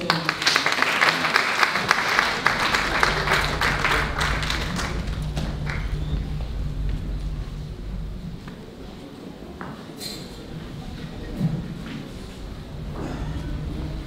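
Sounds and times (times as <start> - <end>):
crowd applauding: 0.0 - 8.2
low steady hum: 1.6 - 14.0.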